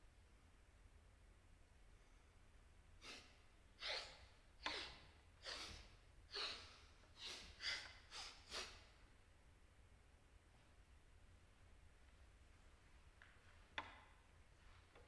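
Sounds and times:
short sharp gasping breaths: 3.0 - 9.0.

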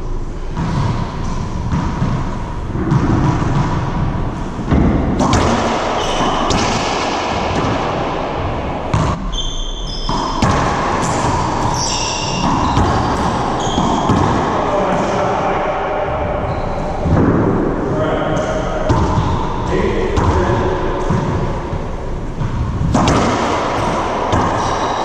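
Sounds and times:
racquetball ball smacks: 4.6 - 9.2, 10.1 - 15.0, 22.4 - 25.0
sneakers squeaking on hardwood: 5.8 - 6.9, 8.9 - 14.4, 16.1 - 17.2.

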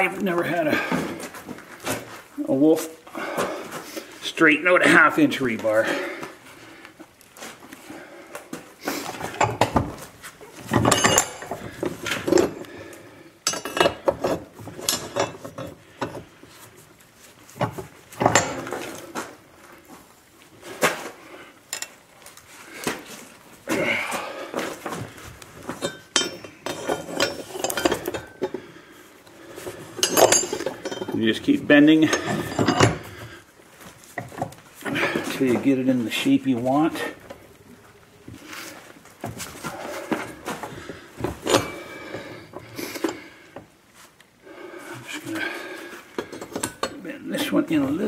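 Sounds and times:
metal clanks and scrapes: 9.0 - 16.4, 17.5 - 19.3, 25.6 - 28.7, 29.5 - 33.4, 39.2 - 43.4, 45.1 - 48.0.

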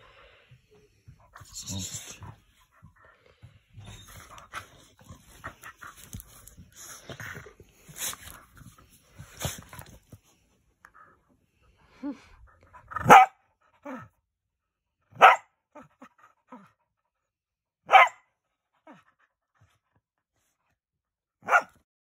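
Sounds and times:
dog barking harshly: 13.0 - 13.4, 15.2 - 15.5, 17.9 - 18.2, 21.4 - 21.8.

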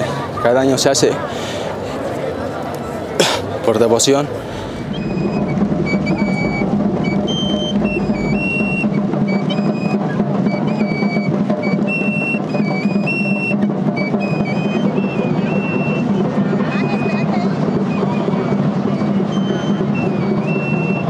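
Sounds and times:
shrill pipe melody: 4.8 - 21.0
small hand drum: 4.8 - 21.0.

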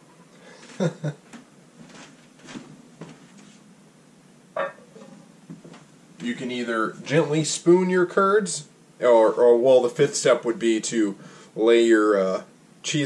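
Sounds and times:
man's voice: 6.2 - 13.0.

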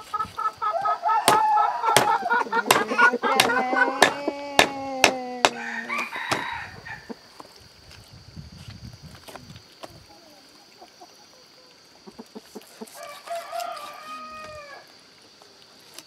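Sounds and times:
chicken clucking: 0.0 - 6.1, 9.8 - 14.6
rooster crowing: 0.6 - 4.4, 5.4 - 7.2, 12.9 - 15.0
cleaver chopping on wood: 1.2 - 5.6, 6.3 - 6.5.

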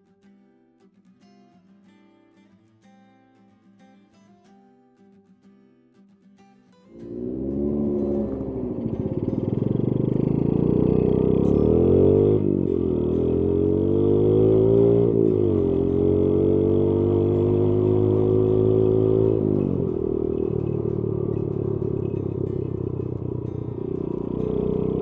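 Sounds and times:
motorcycle engine accelerating: 6.9 - 25.0.

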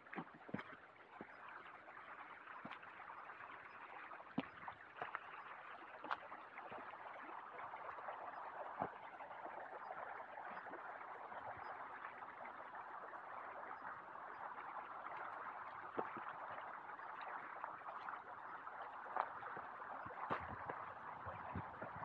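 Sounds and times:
stream water running: 0.0 - 22.0.

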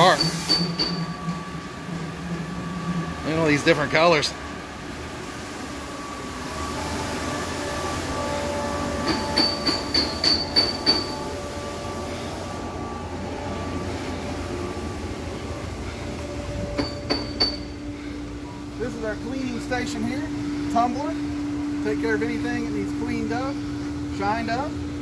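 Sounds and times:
factory machinery hum: 0.0 - 25.0
machine whining tones: 0.0 - 25.0
sharp metallic clinks: 9.0 - 11.3, 16.8 - 17.8.

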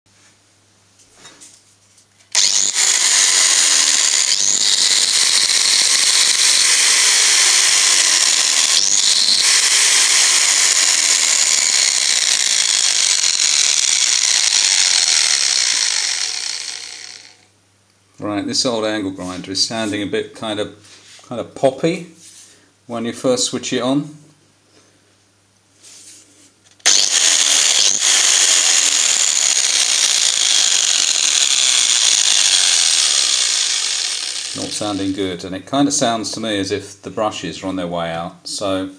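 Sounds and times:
angle grinder whining: 2.3 - 17.4, 26.8 - 35.3.

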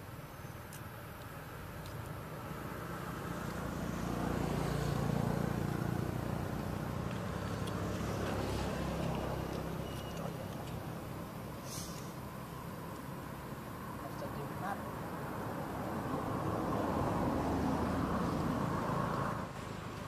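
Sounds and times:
vehicle engine passing by: 2.4 - 12.2, 14.0 - 20.0.

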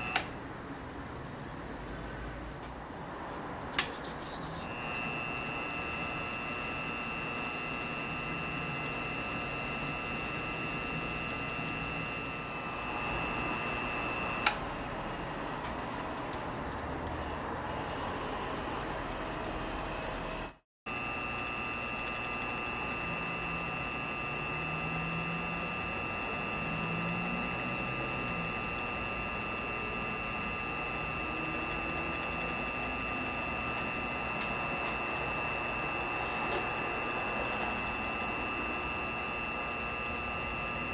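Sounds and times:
wood lathe motor whine: 4.7 - 14.6, 20.9 - 40.9.

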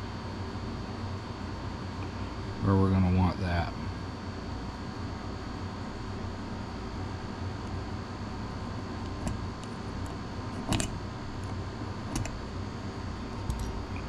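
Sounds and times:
fan hum: 0.0 - 14.0.

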